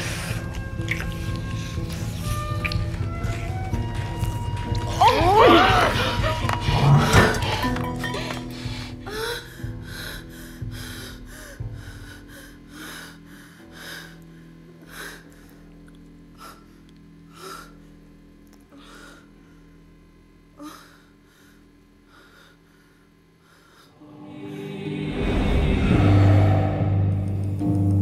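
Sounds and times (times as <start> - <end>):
film music: 0.0 - 14.3, 24.0 - 28.0
low steady drone: 0.0 - 28.0.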